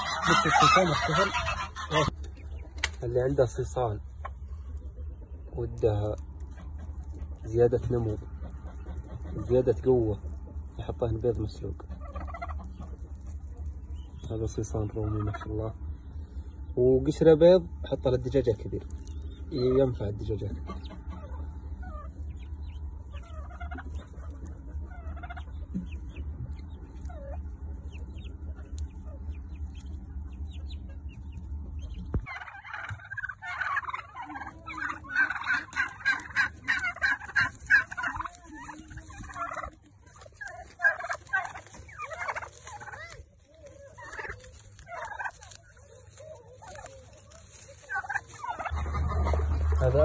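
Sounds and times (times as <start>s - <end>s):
turkey poults peeping: 0.0s - 50.0s
turkeys gobbling: 0.0s - 50.0s
low rumble: 47.1s - 50.0s.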